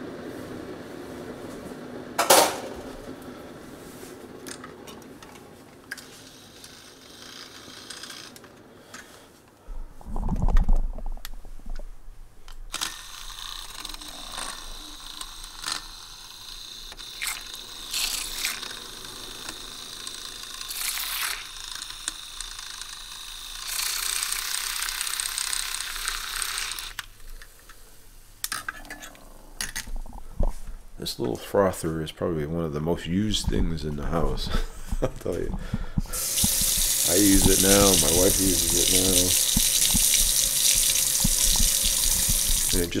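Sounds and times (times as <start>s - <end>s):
milk frother whirring: 5.9s - 8.6s, 12.7s - 27.1s, 36.1s - 43.0s.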